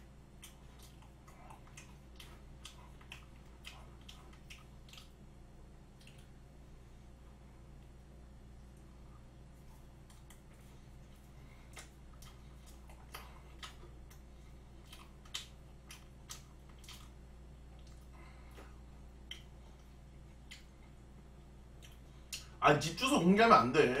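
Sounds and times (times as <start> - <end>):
faint low hum: 0.0 - 24.0
mouth chewing wetly: 0.3 - 5.3, 5.9 - 6.4, 9.6 - 21.1.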